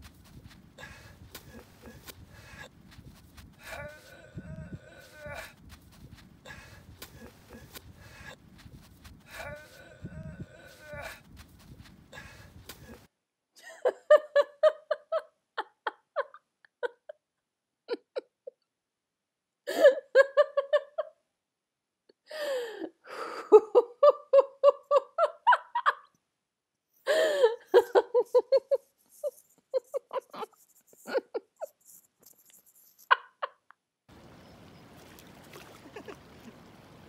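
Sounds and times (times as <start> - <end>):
person laughing: 0.8 - 2.7, 3.6 - 5.6, 9.3 - 11.2, 17.9 - 18.6, 19.7 - 21.1, 23.5 - 26.1, 27.1 - 32.4, 33.0 - 33.8, 35.7 - 36.6.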